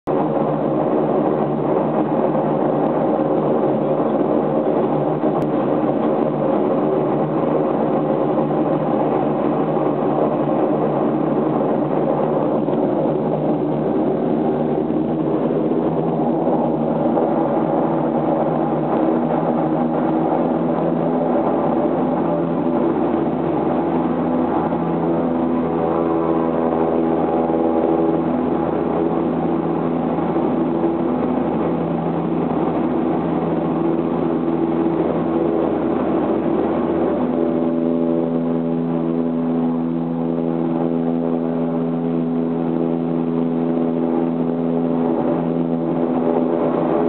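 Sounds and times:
turboprop engines droning: 0:00.0 - 0:47.0.

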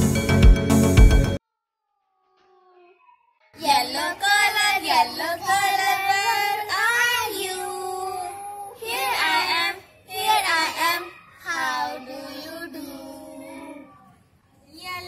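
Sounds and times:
children singing: 0:03.6 - 0:14.1.

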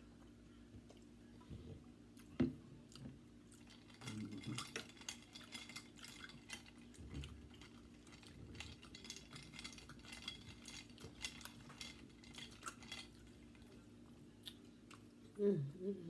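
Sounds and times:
chewing and handling food: 0:00.0 - 0:15.4.

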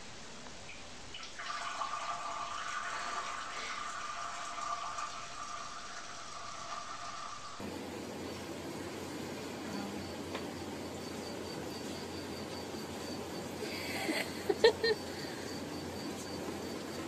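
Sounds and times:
liquid trickling into water: 0:00.7 - 0:07.6.

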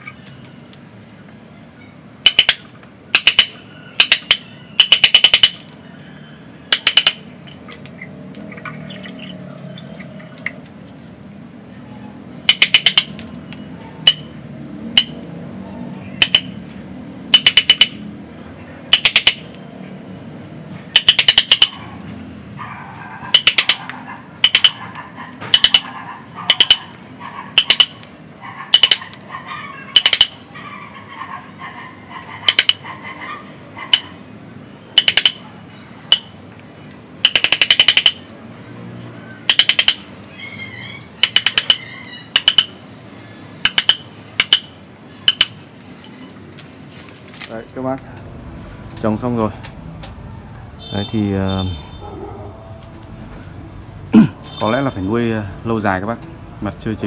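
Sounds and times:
metallic chisel clicks: 0:02.3 - 0:05.6, 0:06.7 - 0:07.6, 0:35.0 - 0:35.4, 0:37.2 - 0:38.2, 0:39.5 - 0:40.1, 0:41.2 - 0:42.7, 0:43.6 - 0:44.7.

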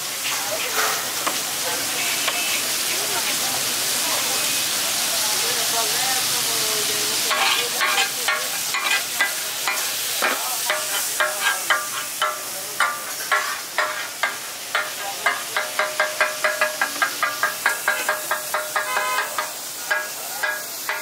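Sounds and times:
meat sizzling on griddle: 0:00.0 - 0:21.0
metal spatulas clinking on griddle: 0:07.3 - 0:21.0.

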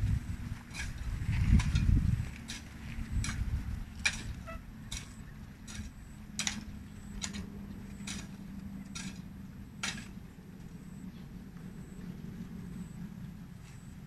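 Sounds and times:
low hum: 0:00.0 - 0:14.0
hand tool chopping soil: 0:00.7 - 0:09.2, 0:09.8 - 0:10.2.

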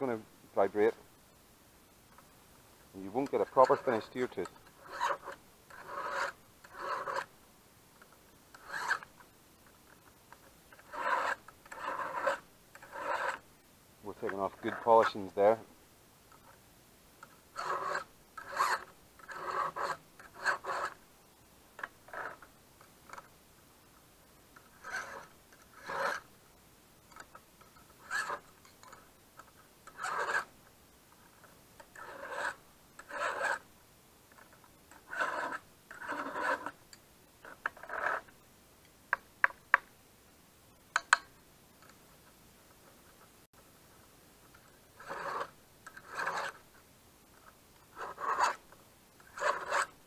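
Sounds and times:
file rasping on chainsaw chain: 0:03.1 - 0:07.3, 0:08.6 - 0:09.1, 0:10.7 - 0:13.4, 0:17.6 - 0:21.0, 0:22.1 - 0:22.4, 0:24.8 - 0:26.2, 0:28.0 - 0:29.0, 0:29.8 - 0:30.5, 0:31.9 - 0:33.6, 0:34.9 - 0:36.8, 0:45.0 - 0:46.6, 0:48.0 - 0:48.6, 0:49.2 - 0:49.9.

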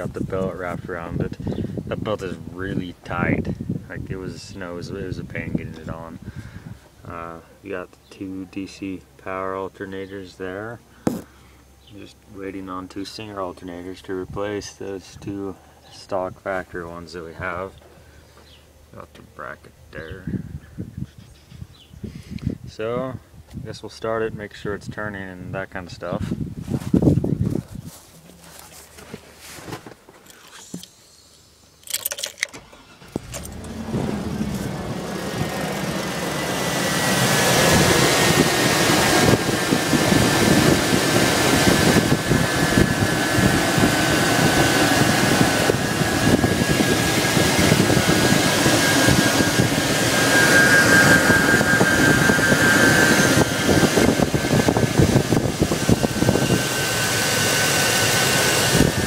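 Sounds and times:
car engine cranking and running: 0:31.8 - 0:59.0
high belt whine: 0:32.6 - 0:59.0.

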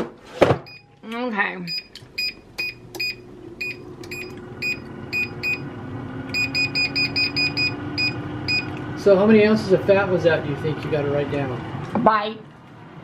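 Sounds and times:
air fryer fan humming: 0:00.4 - 0:13.0
control panel beeps: 0:01.6 - 0:05.6, 0:06.3 - 0:08.8.

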